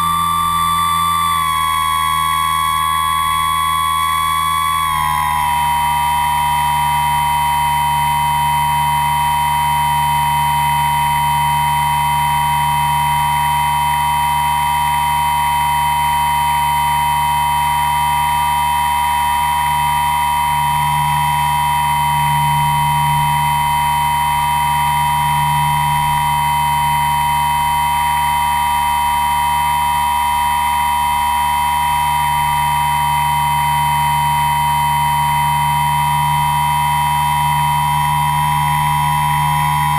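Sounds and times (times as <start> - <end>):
aircraft motor high whine: 0.0 - 39.9.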